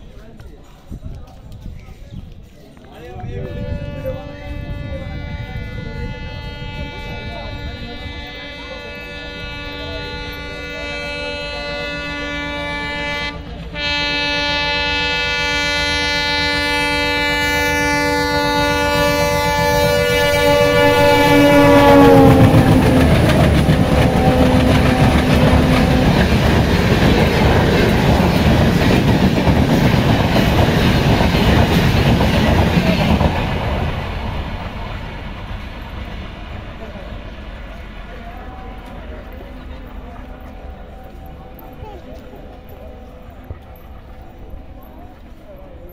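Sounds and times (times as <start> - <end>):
train rumble and wheel clatter: 0.0 - 45.9
locomotive horn blast: 3.3 - 34.8.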